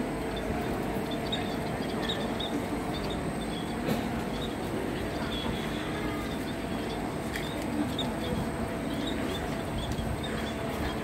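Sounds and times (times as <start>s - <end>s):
murmur of voices: 0.0s - 11.0s.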